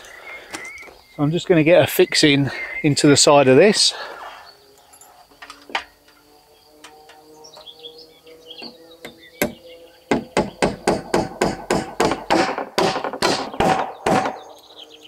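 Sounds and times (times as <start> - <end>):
hammer driving nail into timber: 10.1 - 14.4.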